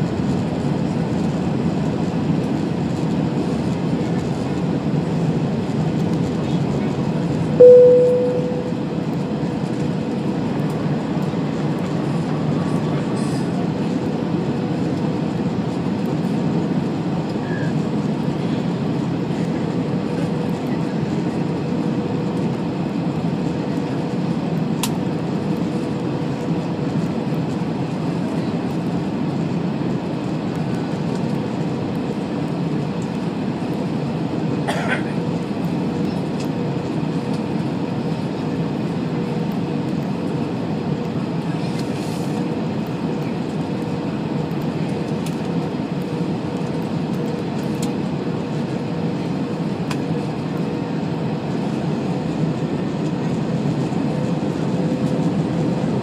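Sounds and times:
airplane cabin engine roar: 0.0s - 56.0s
faint steady hum: 7.6s - 8.9s.

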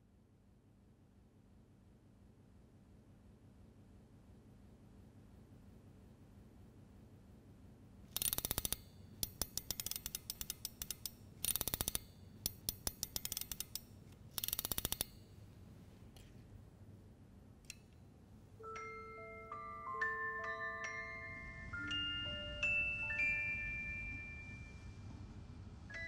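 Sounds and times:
music box ratchet clicking: 8.1s - 15.3s
music box chiming notes: 18.6s - 25.0s.

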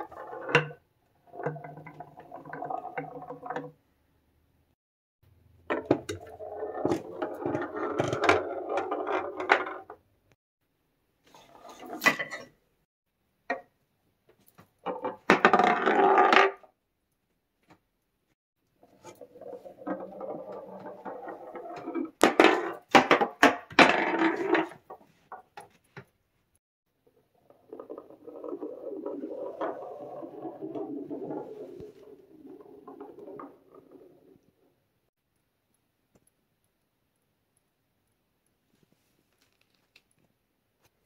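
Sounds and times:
marble clicking and knocking: 0.0s - 3.8s, 14.5s - 16.6s, 18.6s - 26.2s, 27.2s - 36.8s
marble rolling on wooden floor: 0.0s - 3.8s, 5.6s - 10.1s, 14.8s - 16.7s, 18.7s - 25.6s, 27.0s - 35.1s.

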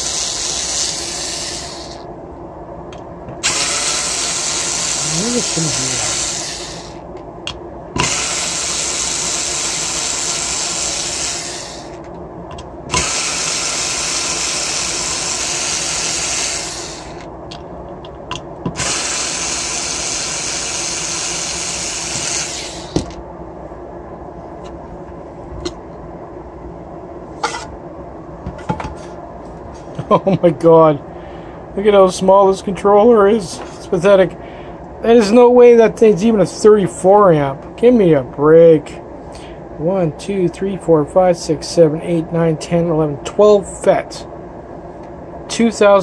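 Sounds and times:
electric screwdriver running: 0.0s - 2.0s, 3.4s - 7.0s, 8.0s - 12.0s, 12.9s - 17.2s, 18.7s - 23.0s.

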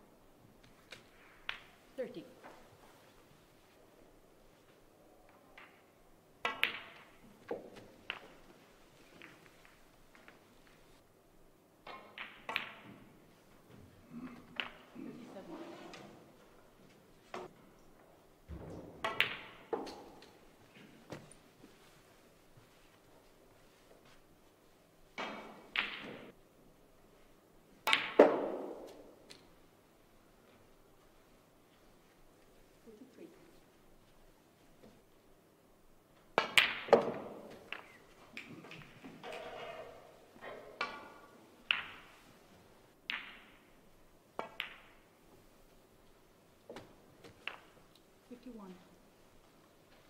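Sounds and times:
snooker balls clacking: 0.7s - 1.8s, 5.3s - 10.9s, 11.8s - 13.8s, 14.4s - 18.1s, 18.8s - 22.0s, 25.1s - 26.4s, 27.8s - 29.6s, 36.2s - 45.2s, 46.7s - 48.1s
cue striking ball: 27.8s - 29.0s, 43.1s - 43.6s.

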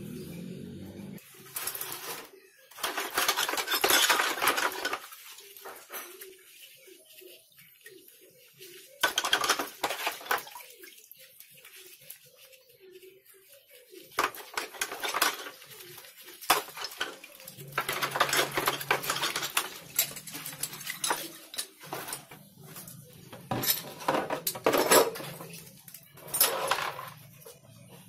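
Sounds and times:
metal parts clinking: 1.5s - 5.2s, 16.5s - 22.4s, 23.3s - 27.2s.

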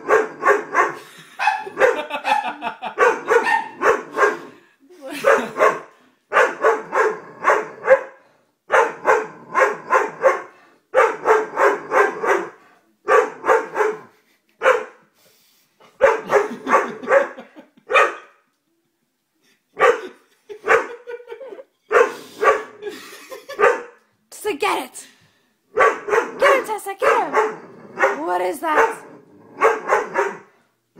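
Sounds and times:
dog barking: 0.0s - 4.5s, 5.1s - 15.0s, 16.0s - 18.4s, 19.8s - 21.1s, 21.9s - 22.8s, 23.6s - 24.0s, 25.8s - 30.5s.

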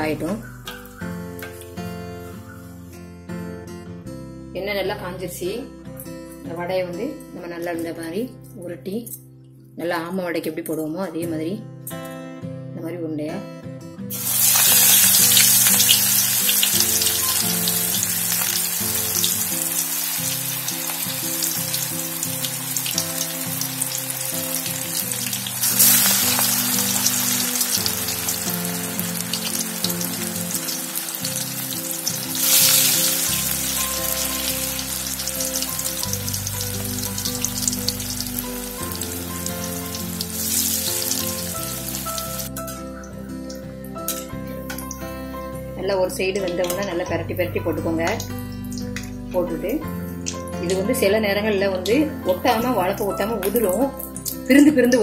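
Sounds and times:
deep-frying sizzling and crackling: 14.1s - 45.2s.

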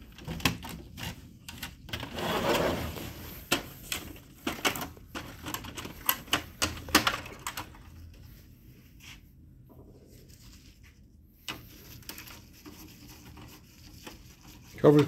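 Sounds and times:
plastic covers clicking and knocking: 3.5s - 7.8s.

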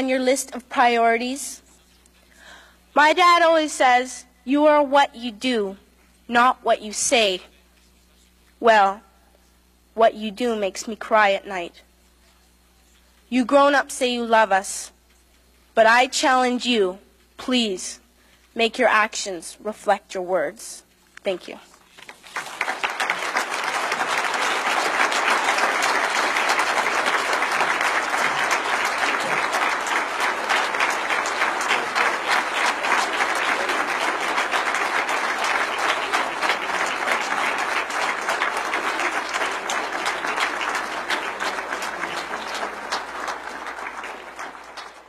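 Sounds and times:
audience applause: 22.0s - 45.0s.

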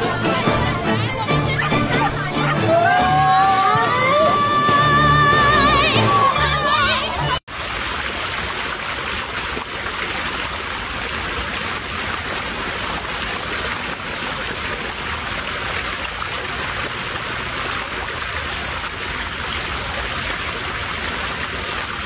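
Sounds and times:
water running in a ditch: 7.4s - 22.0s.

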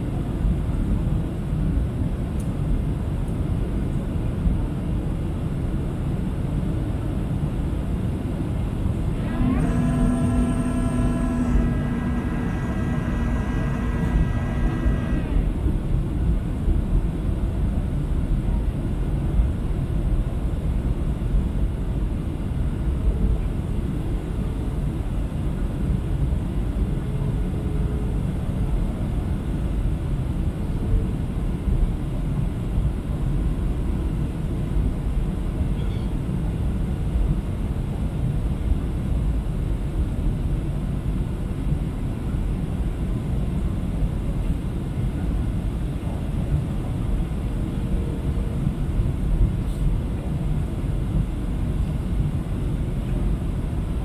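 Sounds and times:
faint hum: 5.3s - 54.0s
jet engines roaring: 9.0s - 16.0s.

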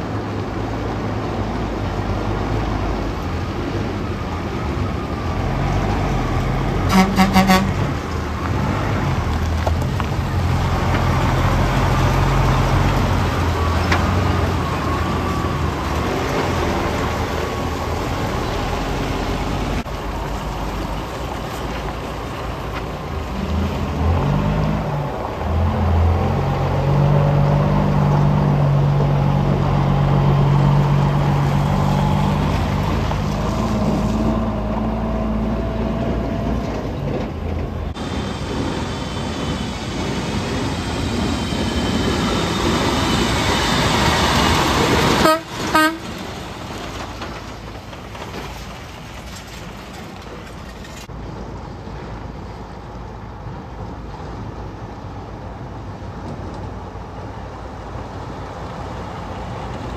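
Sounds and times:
diesel truck engines: 0.0s - 59.9s
truck horn toot: 6.8s - 7.9s, 45.1s - 46.2s.

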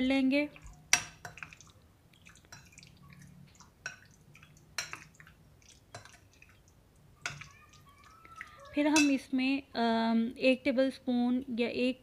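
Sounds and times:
spoon stirring wet marinade: 0.0s - 9.3s
spoon clinking against glass: 4.8s - 5.1s, 8.9s - 9.2s.

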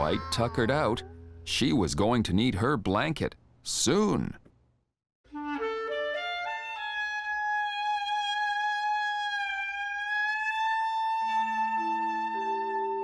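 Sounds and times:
background music with held high note: 5.3s - 13.0s.

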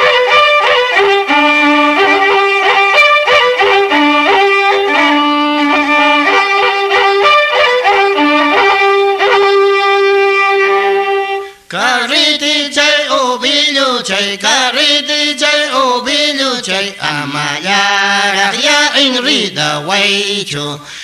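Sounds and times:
violin folk melody: 0.0s - 12.4s.

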